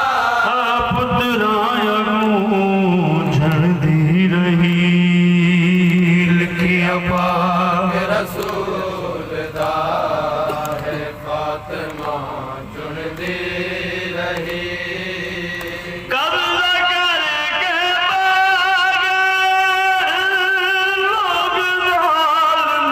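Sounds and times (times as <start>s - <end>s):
man chanting through loudspeaker: 0.0s - 22.9s
men chanting together: 0.0s - 22.9s.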